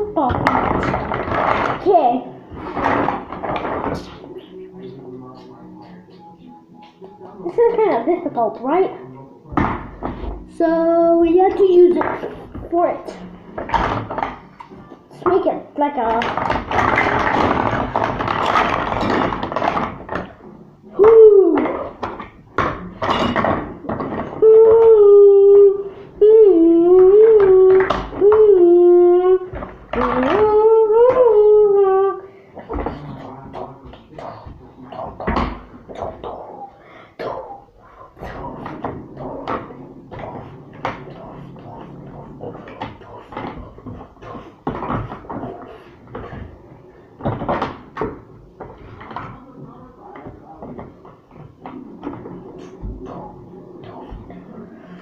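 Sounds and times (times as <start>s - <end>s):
plastic blocks clattering: 16.1s - 20.4s.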